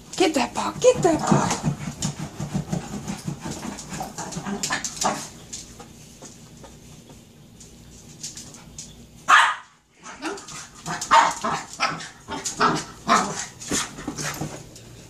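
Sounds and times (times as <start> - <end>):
small dog barking: 9.3 - 9.8, 11.1 - 12.0.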